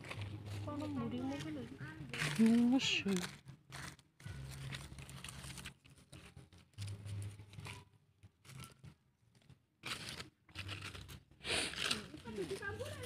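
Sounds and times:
dry leaves crunching and rustling: 0.0 - 7.8, 9.8 - 13.0.

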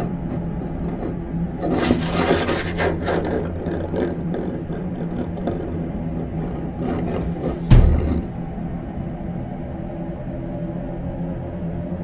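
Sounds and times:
harsh scraping rasping noise: 0.0 - 8.4
low steady hum: 0.0 - 12.0.

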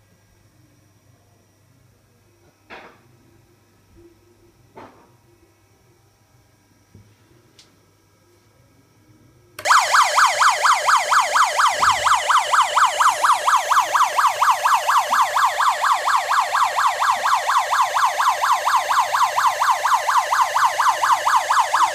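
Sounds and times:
electronic police siren yelp: 9.6 - 21.9.

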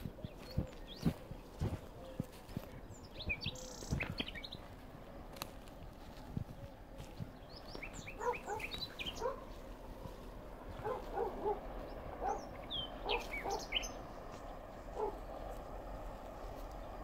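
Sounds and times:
lower bird calls: 0.0 - 4.8, 6.0 - 15.7
birds chirping and whistling: 0.2 - 4.8, 6.5 - 9.5, 10.8 - 14.4.

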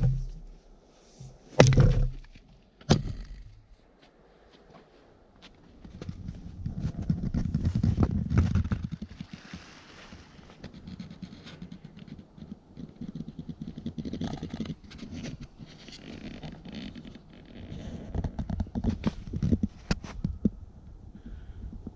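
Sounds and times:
spruce boughs rustling: 8.8 - 14.0.

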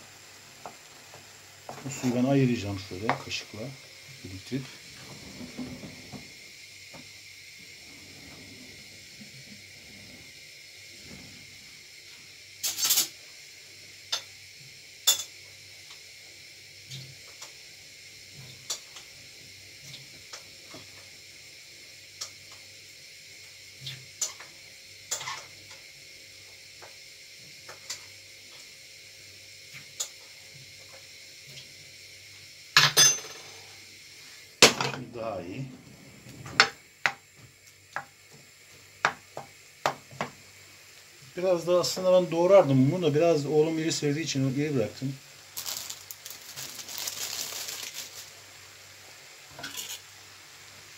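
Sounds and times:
faint steady hiss: 0.0 - 50.9
utensils and dishes clinking: 12.6 - 13.1, 49.6 - 50.0.

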